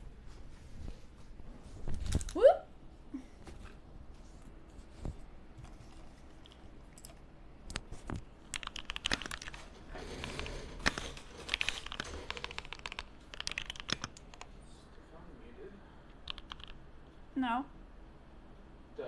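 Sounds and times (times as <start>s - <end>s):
keyboard keys clicking: 6.4s - 9.6s, 10.2s - 14.5s, 16.2s - 16.8s.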